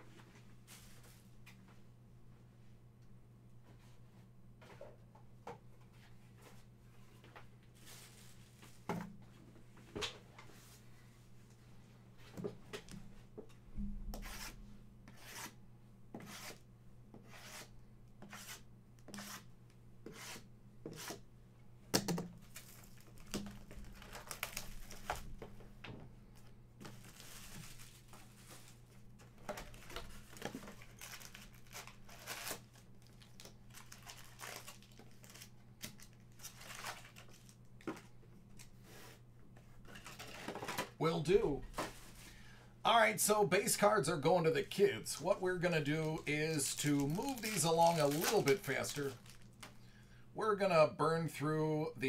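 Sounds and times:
card wrappers ripping and crinkling: 0:22.5 - 0:25.3, 0:26.9 - 0:28.7, 0:29.6 - 0:37.6, 0:45.8 - 0:49.7.

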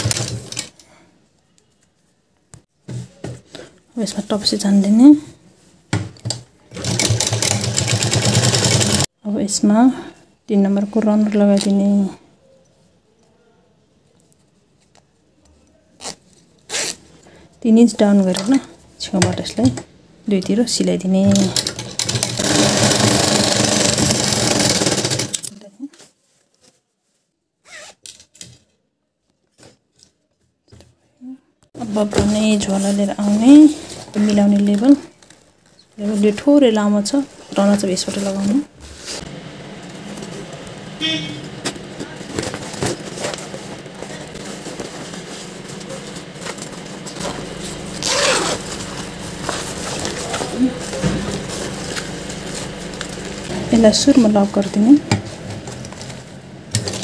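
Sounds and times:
sewing machine stitching: 0:00.0 - 0:00.8, 0:06.7 - 0:09.1, 0:21.2 - 0:25.5
fabric rustling: 0:31.8 - 0:56.5.

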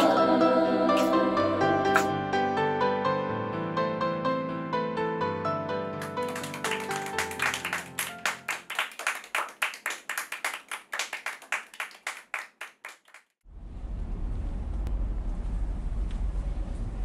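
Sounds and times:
audience clapping: 0:06.0 - 0:13.4.

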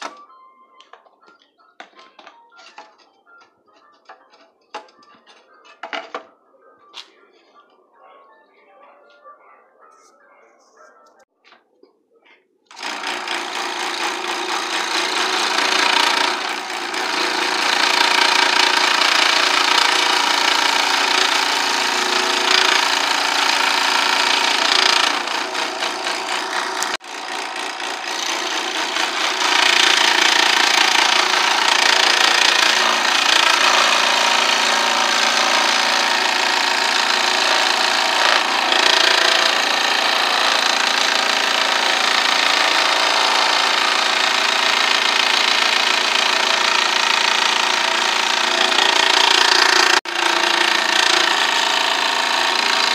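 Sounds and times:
scroll saw cutting wood: 0:00.0 - 0:00.2, 0:12.7 - 0:52.9.

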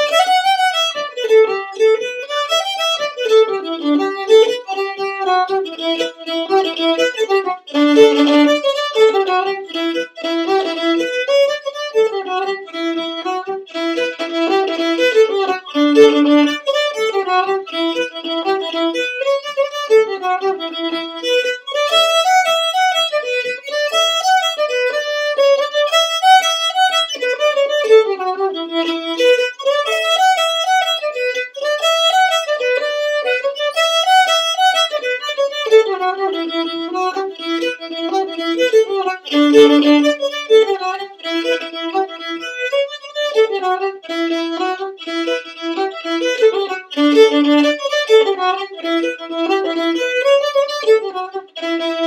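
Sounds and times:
solo fiddle playing a jig: 0:00.0 - 0:52.0.

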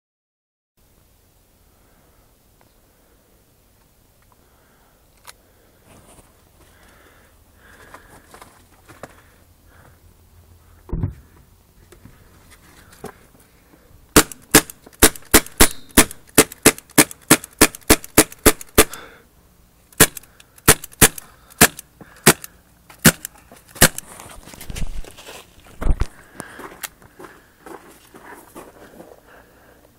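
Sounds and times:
dull thump: 0:10.9 - 0:11.4
sharp cracks: 0:14.1 - 0:19.1, 0:19.9 - 0:24.1.

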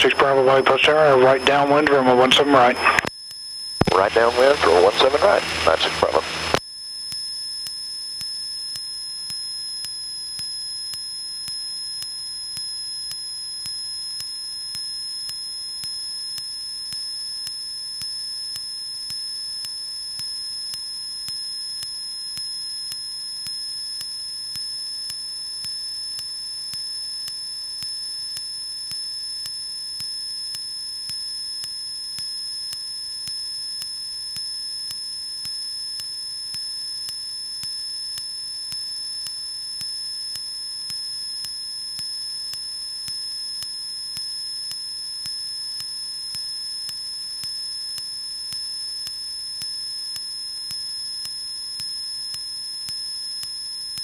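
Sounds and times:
high-pitched electrical whine: 0:03.7 - 0:07.0
faint tick: 0:07.6 - 0:54.0.

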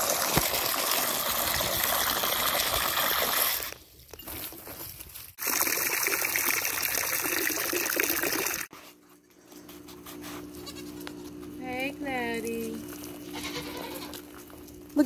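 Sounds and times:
hose water pouring into bucket: 0:00.0 - 0:03.8, 0:05.4 - 0:08.7.

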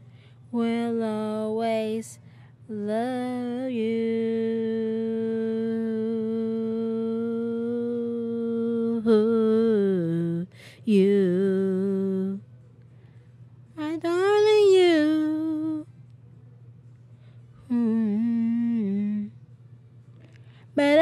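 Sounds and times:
woman humming: 0:04.5 - 0:12.4, 0:17.6 - 0:19.3.

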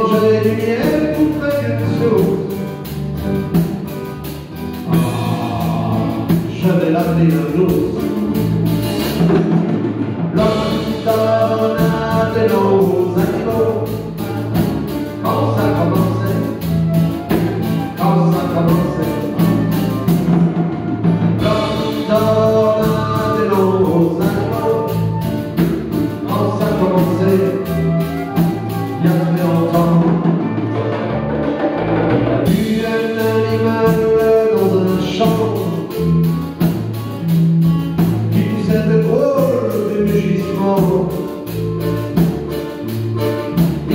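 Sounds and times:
flute melody: 0:00.0 - 0:09.3, 0:10.3 - 0:43.9
acoustic guitars: 0:00.0 - 0:43.9.

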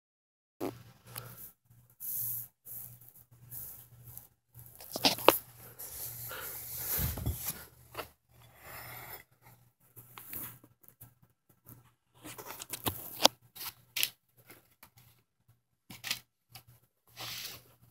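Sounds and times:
cloth rustling and rubbing: 0:02.8 - 0:08.0.

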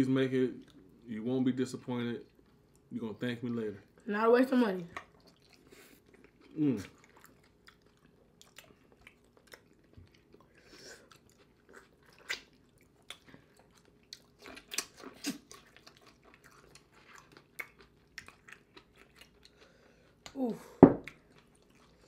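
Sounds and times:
people chewing and lip smacking: 0:04.9 - 0:20.4, 0:21.0 - 0:22.0.

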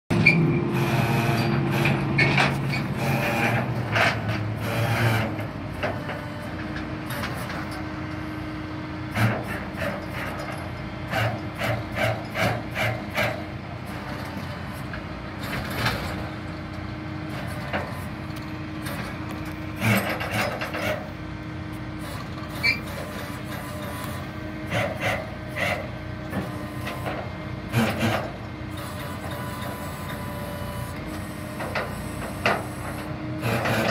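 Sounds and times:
short knocks and scrapes: 0:01.4 - 0:07.8.

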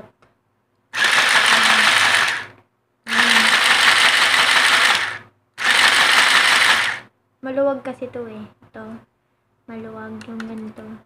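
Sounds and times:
sewing machine motor and gears: 0:01.0 - 0:02.5, 0:03.1 - 0:07.1.

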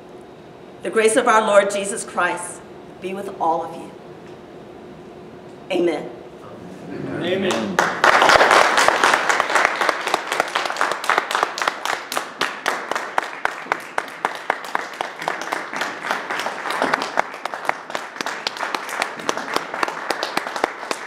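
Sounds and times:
congregation applauding: 0:07.4 - 0:21.0.

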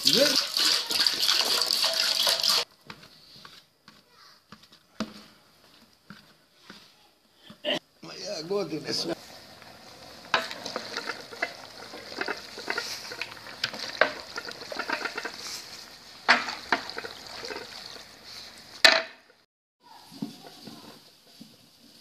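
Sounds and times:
spatula scraping pot: 0:00.0 - 0:02.7, 0:09.2 - 0:18.6.

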